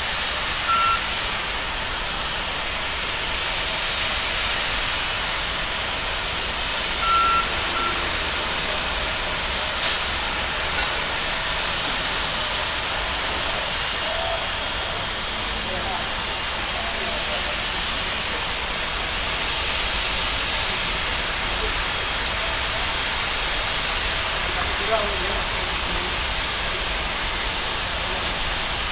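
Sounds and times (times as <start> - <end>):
hiss of ramp machinery: 0.0 - 16.8
short beeps: 0.7 - 1.1, 6.3 - 8.7.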